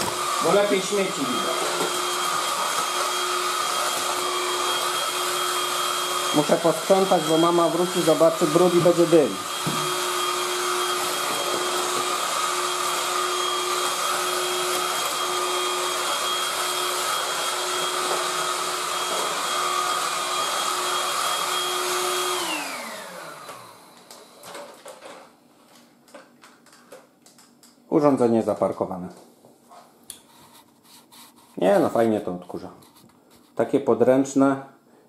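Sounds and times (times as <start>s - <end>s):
vacuum cleaner whining: 0.0s - 25.4s.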